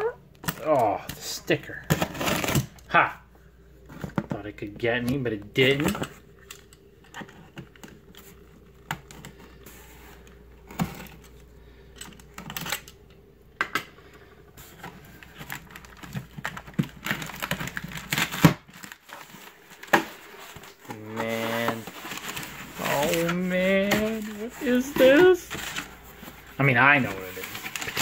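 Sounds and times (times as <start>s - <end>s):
packing tape tearing: 1.9s - 2.8s, 15.0s - 26.5s, 27.2s - 28.0s.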